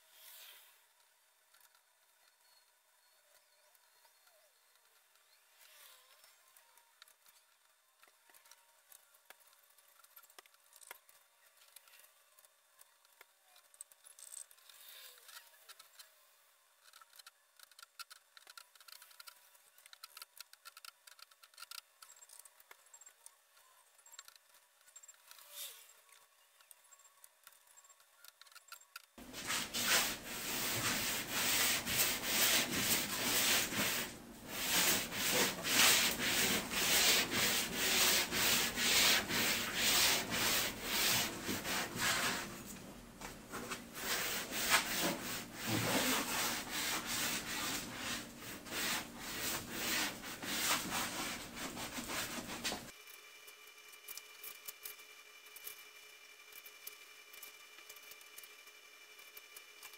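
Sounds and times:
sandpaper rubbing back and forth: 0:29.2 - 0:42.7, 0:43.5 - 0:52.9.

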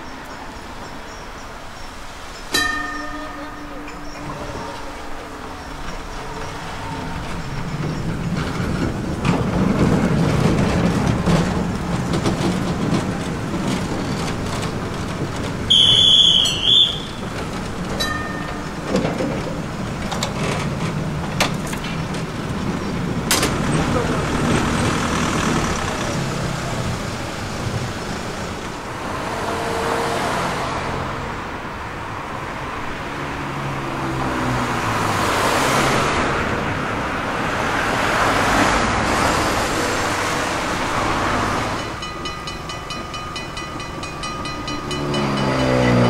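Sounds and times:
electric trams passing: 0:00.0 - 0:46.0
road traffic: 0:00.0 - 0:46.0
level-crossing warning bell ringing: 0:02.5 - 0:08.4, 0:15.7 - 0:19.8, 0:41.6 - 0:46.0.

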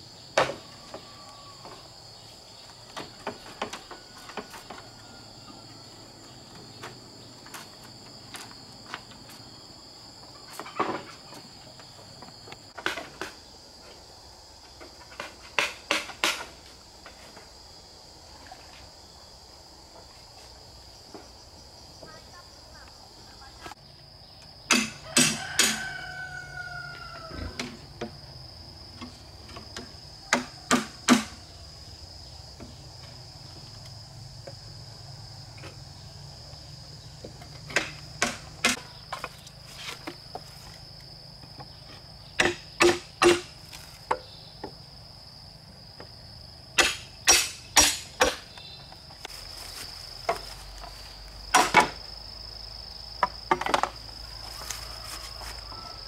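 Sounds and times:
insect trill: 0:00.0 - 0:56.0
hand tool striking wood: 0:14.9 - 0:16.6, 0:24.7 - 0:25.9, 0:29.8 - 0:31.4, 0:37.6 - 0:40.2, 0:42.4 - 0:44.7, 0:46.8 - 0:48.6, 0:51.5 - 0:52.0.

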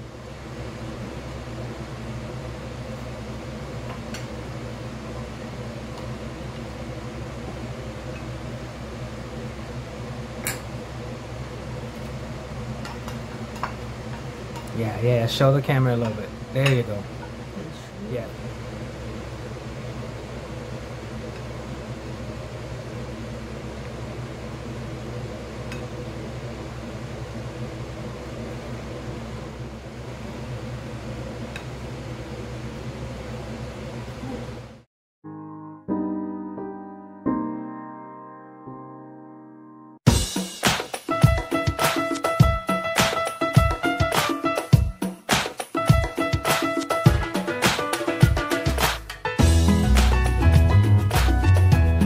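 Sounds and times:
kitchen appliance humming: 0:00.0 - 0:34.9.

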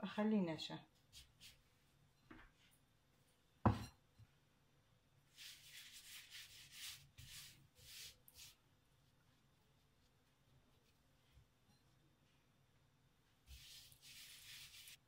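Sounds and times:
bowl knocking on wooden board: 0:03.7 - 0:04.0
hand rubbing dough soft swishes: 0:05.3 - 0:12.6, 0:13.2 - 0:15.0.

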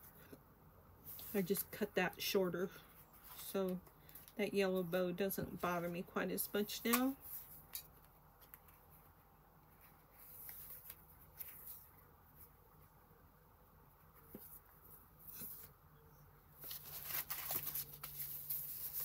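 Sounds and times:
journal pages rustling: 0:09.7 - 0:12.5, 0:16.6 - 0:19.0.

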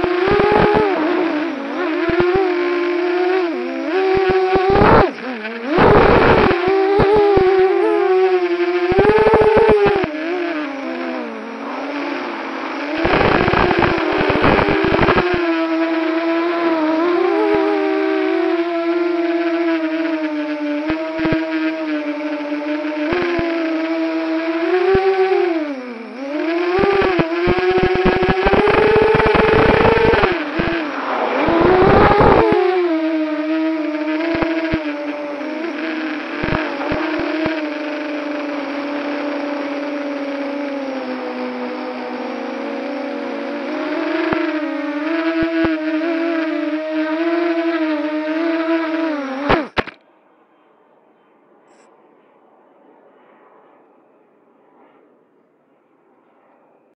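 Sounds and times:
crackling rattle: 0:00.0 - 0:50.0
drone motors and propellers whining: 0:00.0 - 0:50.2
sharp clicks: 0:11.8 - 0:16.2, 0:49.4 - 0:50.1.

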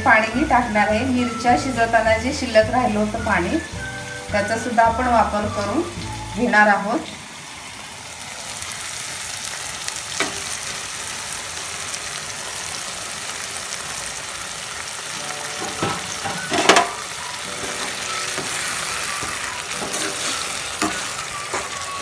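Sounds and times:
paste sizzling in a pan: 0:00.1 - 0:22.0
spatula knocking and scraping pan: 0:15.6 - 0:17.0, 0:17.6 - 0:21.8.

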